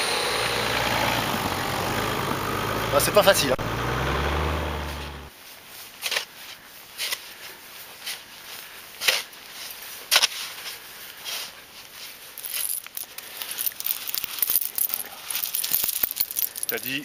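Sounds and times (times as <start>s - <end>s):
chain scraping in snow: 11.2s - 17.0s
steel chain links jingling: 12.4s - 17.0s.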